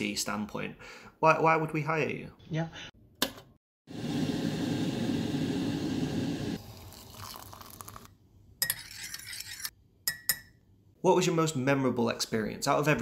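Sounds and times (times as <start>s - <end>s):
liquid being poured: 6.5s - 8.2s.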